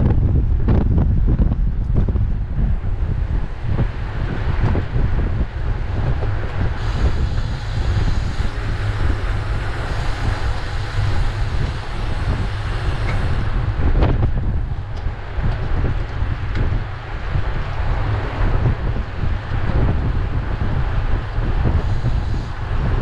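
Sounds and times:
wind buffeting microphone: 0.0 - 23.0
tyre hiss on road: 4.8 - 14.0, 17.0 - 23.0.

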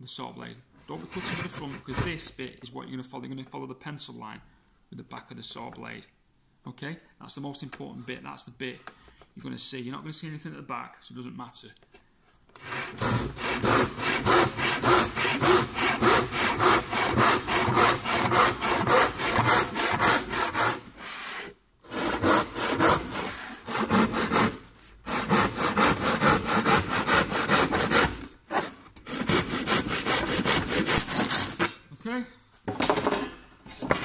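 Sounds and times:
handsaw cutting wood: 12.6 - 31.7.

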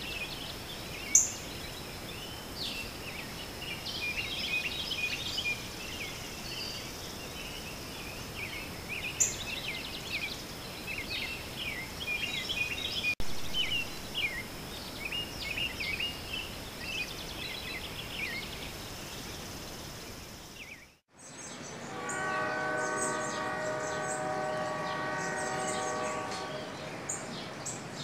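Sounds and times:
steady high hiss: 0.0 - 20.9
birds chirping: 0.0 - 28.0
long held chord: 21.7 - 27.1.

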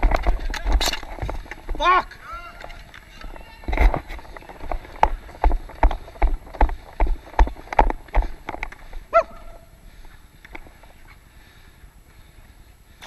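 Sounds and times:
running footsteps on plastic court: 1.2 - 11.0.

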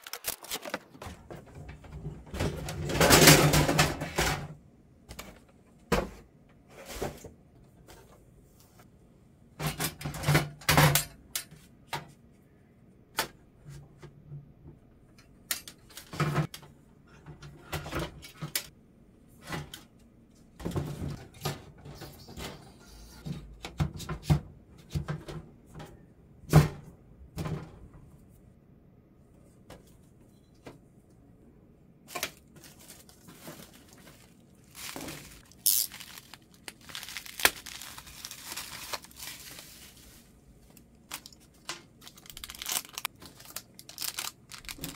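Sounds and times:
parts clicking and rattling: 33.3 - 39.4.

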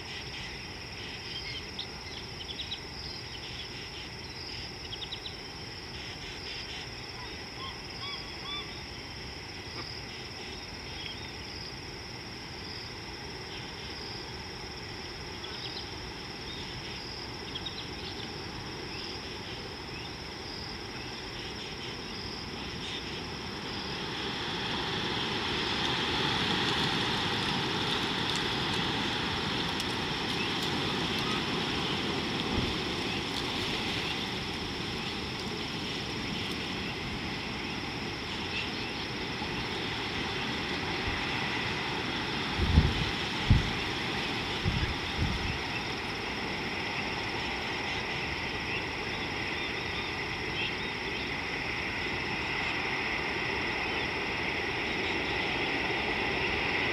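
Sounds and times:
high insect drone: 0.0 - 56.9
broad rushing noise: 22.8 - 48.7.

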